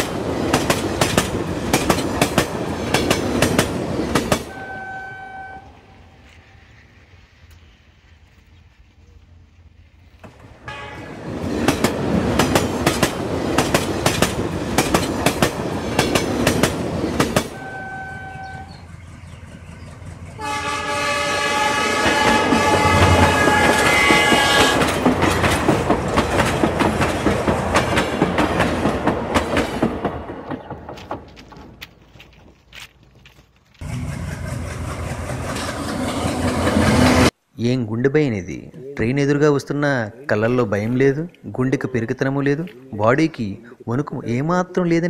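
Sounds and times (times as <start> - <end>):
train wheels clattering over rail joints: 0.0 - 4.5, 11.3 - 17.6, 22.0 - 32.6
train horn: 4.5 - 6.2, 10.6 - 11.2, 17.5 - 18.8, 20.4 - 25.0.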